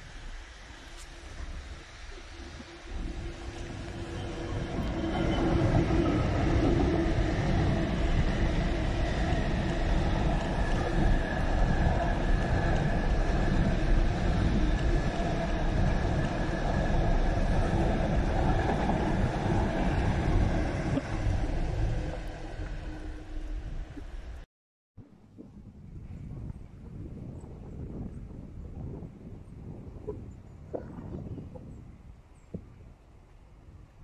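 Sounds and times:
freight train wheels rumbling: 0:00.7 - 0:24.4.

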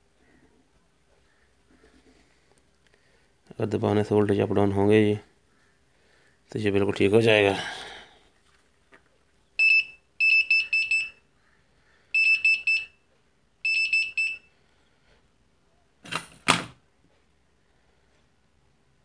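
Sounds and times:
rapid high beeps: 0:09.6 - 0:11.2.

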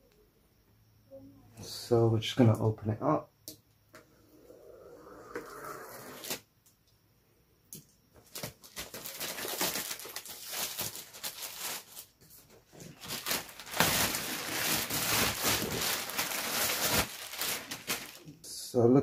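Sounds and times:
plastic shrink-wrap tearing and crinkling: 0:08.2 - 0:12.1, 0:12.7 - 0:18.3.

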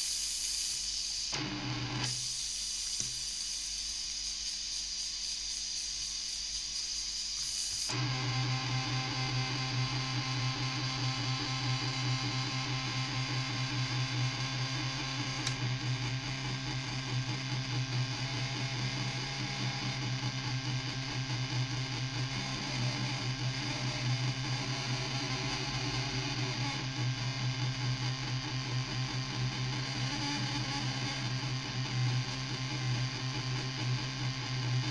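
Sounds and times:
buzzing synthesizer drone: 0:01.1 - 0:34.9.

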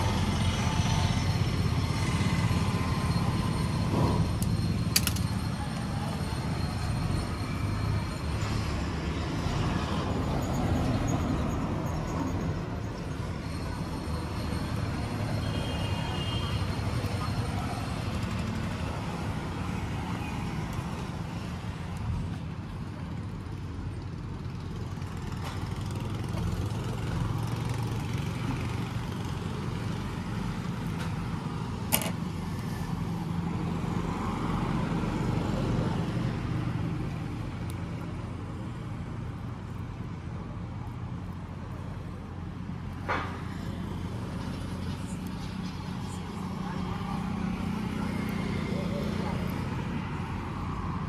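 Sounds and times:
scissors snipping wire: 0:04.4 - 0:05.3, 0:31.9 - 0:32.2.

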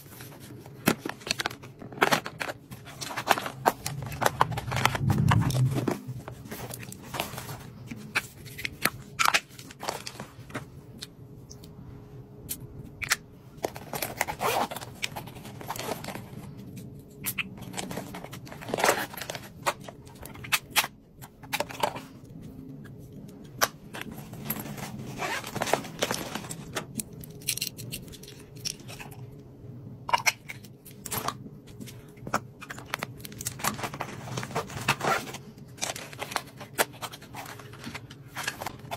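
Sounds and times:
plastic crinkling: 0:00.0 - 0:10.5.

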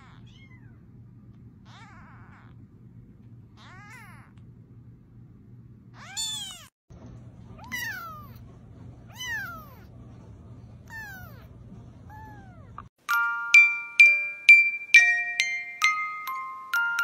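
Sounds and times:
kittens mewing: 0:01.6 - 0:02.6, 0:03.5 - 0:04.4.

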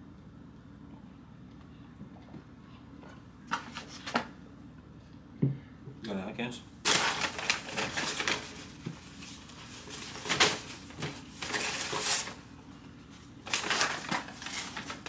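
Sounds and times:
paper napkin rustling: 0:06.9 - 0:15.0.

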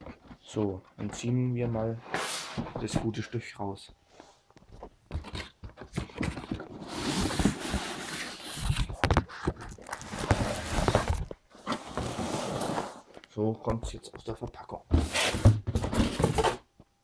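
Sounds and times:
packaging rustling and sliding: 0:01.8 - 0:02.9, 0:06.1 - 0:13.1
cardboard box knocks and scrapes: 0:14.9 - 0:16.6.

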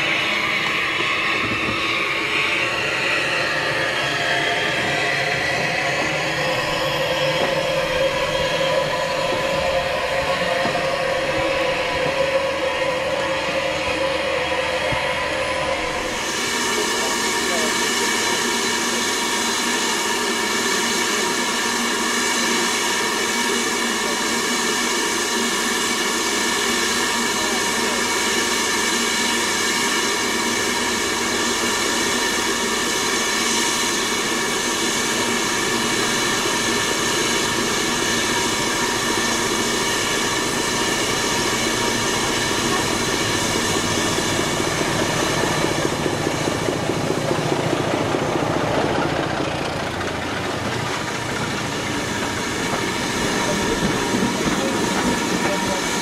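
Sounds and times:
diesel engine rumble: 0:00.0 - 0:21.6, 0:34.3 - 0:56.0
steam hissing: 0:00.0 - 0:56.0
train coaches rattling past: 0:00.0 - 0:56.0.

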